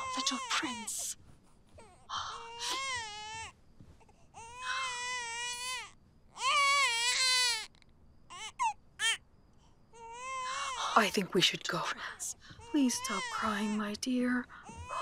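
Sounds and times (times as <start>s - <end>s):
infant crying: 1.8s - 3.5s, 4.4s - 7.7s, 8.3s - 9.2s, 10.0s - 10.8s, 14.6s - 15.0s.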